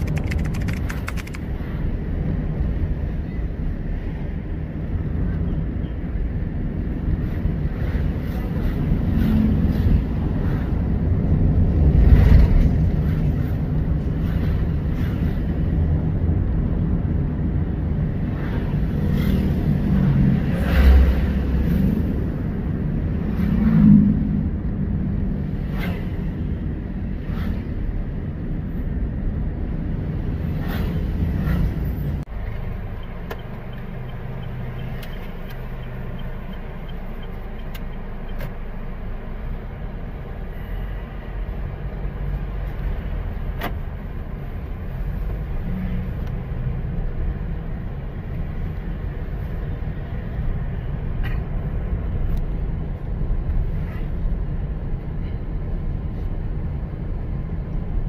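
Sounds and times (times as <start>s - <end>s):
sharp clicks or knocks: 0.0s - 1.4s
car engine and road rumble: 0.0s - 58.0s.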